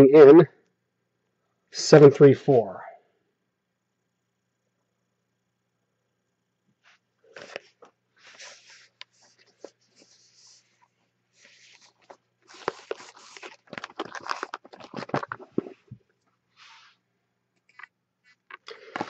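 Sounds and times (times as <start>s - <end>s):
cellophane wrap crinkling: 11.4s - 16.0s.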